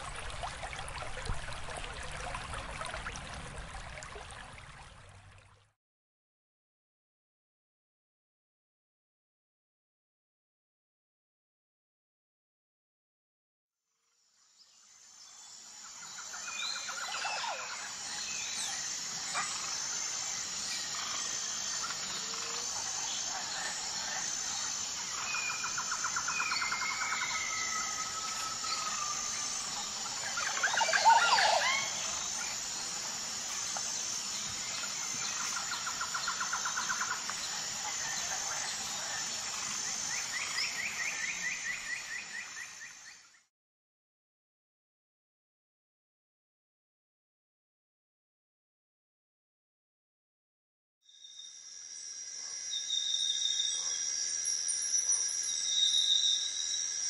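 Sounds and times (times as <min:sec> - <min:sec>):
insect chirping: 0:14.3 - 0:43.4, 0:51.1 - 0:57.0
birds calling: 0:29.8 - 0:32.5
bird trill: 0:30.2 - 0:32.5.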